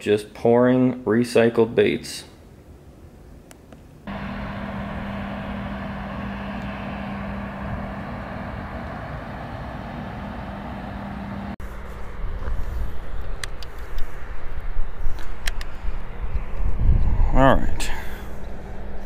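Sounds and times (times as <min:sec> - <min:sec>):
low rumble: 0:04.1 - 0:13.6
vehicle running hum: 0:04.1 - 0:15.6.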